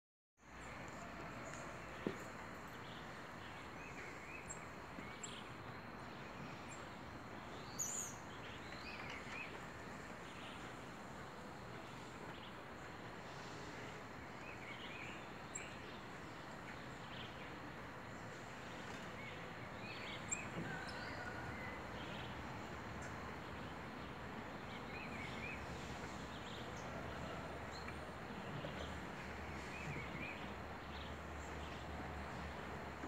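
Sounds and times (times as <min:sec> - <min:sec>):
outdoor background noise: 0:00.4 - 0:33.0.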